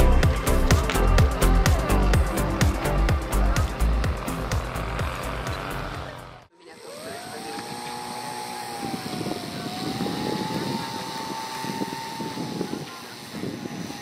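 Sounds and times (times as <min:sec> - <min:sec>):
background music: 0:00.0 - 0:06.5
model airplane motor whine: 0:00.1 - 0:14.0.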